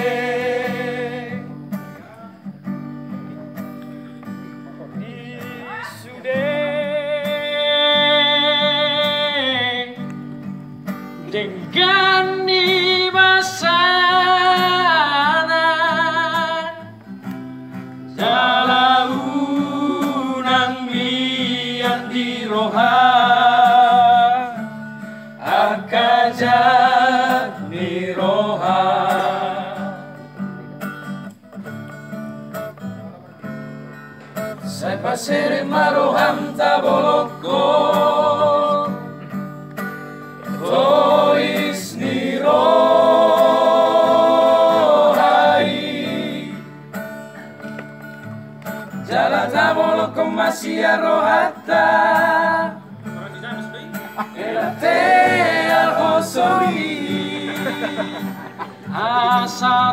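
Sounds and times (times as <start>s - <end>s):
men singing together: 0.0s - 1.5s, 18.1s - 24.6s, 25.4s - 30.2s, 34.7s - 39.2s, 40.6s - 46.7s, 49.0s - 52.8s, 54.2s - 59.9s
strummed acoustic guitar: 0.0s - 59.9s.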